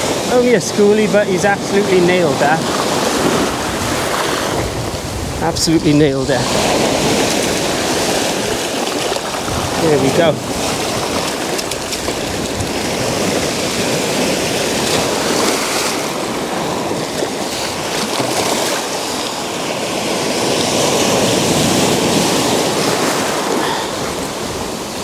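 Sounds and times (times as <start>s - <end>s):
sea water washing over sand: 0.0s - 25.0s
surf breaking and foaming: 0.0s - 25.0s.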